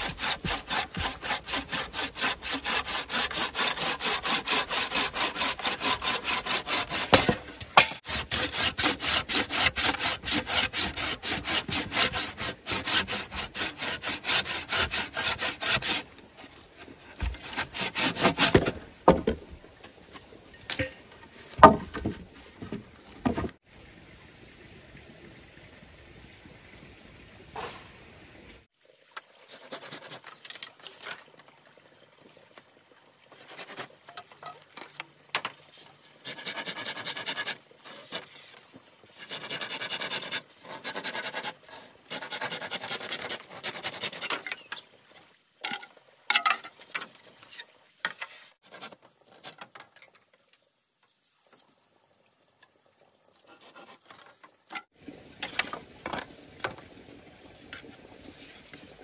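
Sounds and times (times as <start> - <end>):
scraping bamboo by hand: 0.0 - 19.4, 20.6 - 23.6, 29.2 - 31.2, 33.3 - 44.9, 45.6 - 50.2, 53.4 - 56.8.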